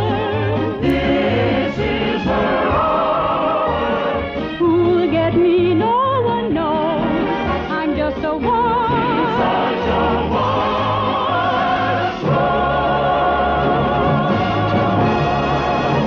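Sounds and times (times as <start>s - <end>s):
orchestra: 0.0s - 16.0s
soprano singing: 0.0s - 16.0s.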